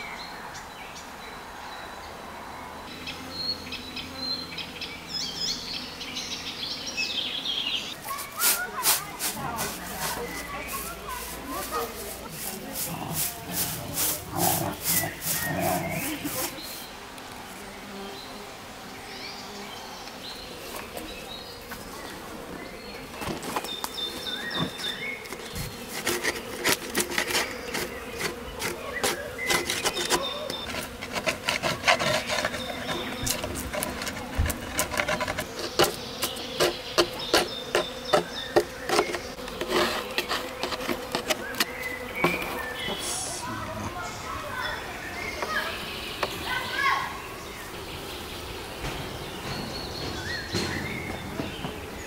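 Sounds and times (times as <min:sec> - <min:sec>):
honeybees buzzing: 0:02.2 - 0:52.0
scraping and clicking against wood: 0:23.2 - 0:42.6.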